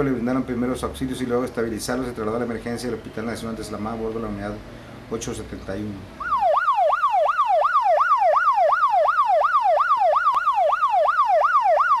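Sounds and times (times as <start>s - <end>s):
electronic siren yelping: 6.2s - 12.0s.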